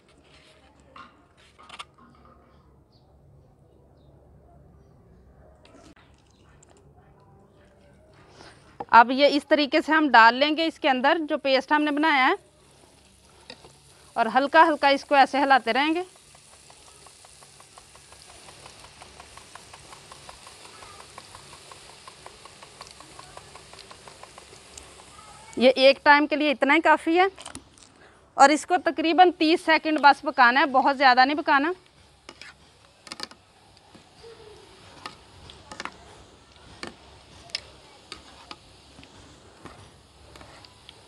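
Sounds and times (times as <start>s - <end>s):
frying sizzle: 9.8s - 27.6s, 28.6s - 41.0s
batter drops ticking into oil: 13.3s - 25.6s.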